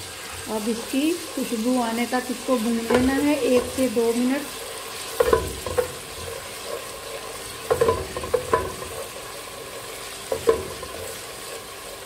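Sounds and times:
onions sizzling in oil: 0:00.0 - 0:12.0
spatula knocking and scraping pot: 0:02.6 - 0:04.1, 0:05.0 - 0:09.4, 0:10.2 - 0:11.5.

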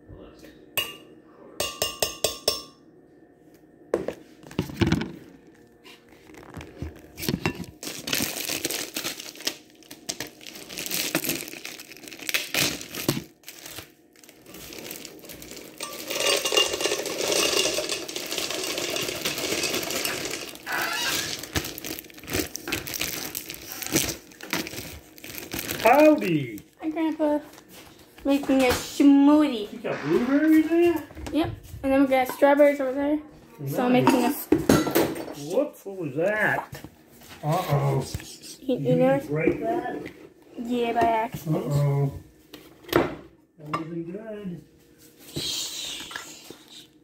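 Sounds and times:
plastic bag crinkling: 0:06.0 - 0:27.5.

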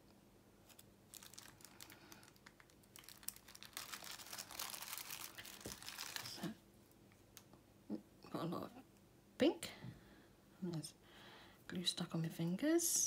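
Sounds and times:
plastic bag crinkling: 0:00.6 - 0:06.6.

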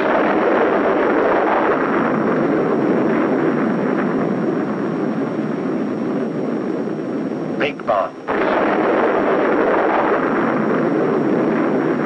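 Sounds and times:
rumbling roar of an explosion: 0:00.0 - 0:07.7, 0:08.3 - 0:12.0.

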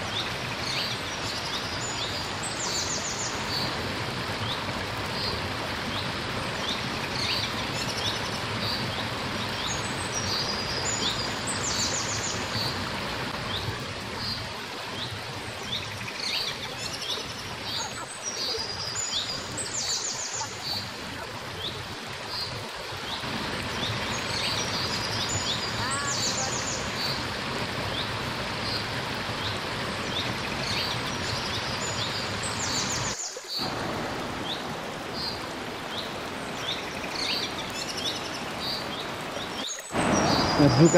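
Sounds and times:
stream running over stones: 0:00.0 - 0:40.9
birds chirping and trilling: 0:34.4 - 0:40.9.

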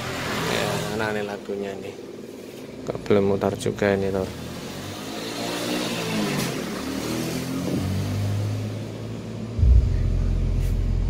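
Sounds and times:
deep subwoofer bass: 0:09.6 - 0:11.0.

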